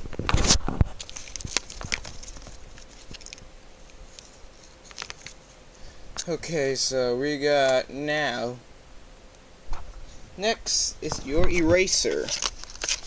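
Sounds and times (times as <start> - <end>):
packaging rustling: 0.0 - 5.6, 11.1 - 13.0.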